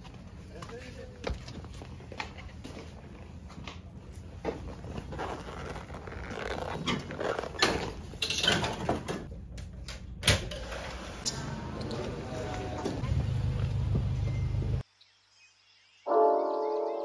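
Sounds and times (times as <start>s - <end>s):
rustling and handling noises: 0.0s - 8.1s.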